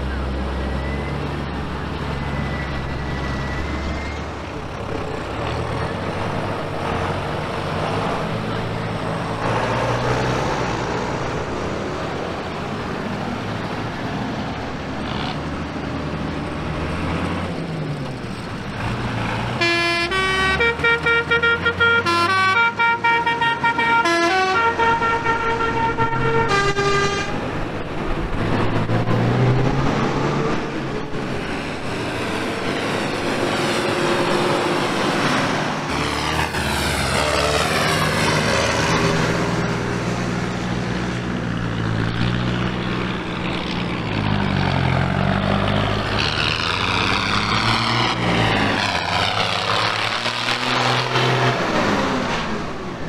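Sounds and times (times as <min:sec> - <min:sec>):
tractor engines passing: 0:00.0 - 0:53.0
musical horn tune: 0:19.6 - 0:27.4.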